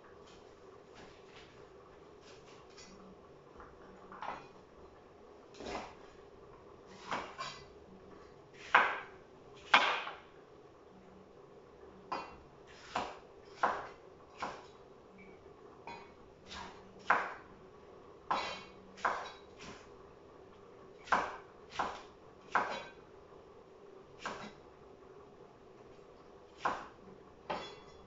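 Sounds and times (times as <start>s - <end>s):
faint steady hum: 0.0s - 28.0s.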